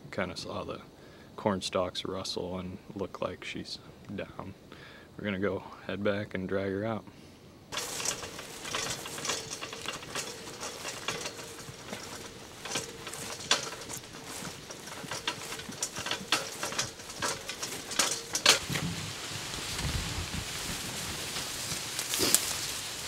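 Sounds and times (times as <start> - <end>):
dry vegetation crackling underfoot: 7.7 - 23.0.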